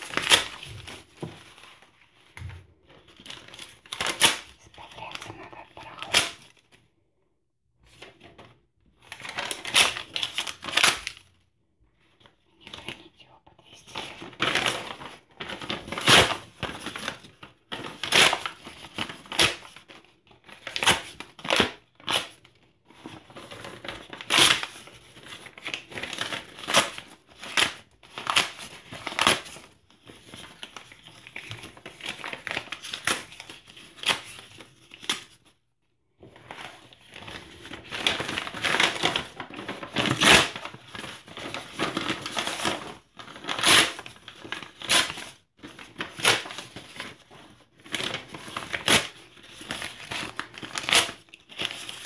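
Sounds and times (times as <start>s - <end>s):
hands crumpling paper: 0.0s - 6.8s, 9.0s - 11.3s, 12.2s - 35.5s, 36.2s - 52.0s.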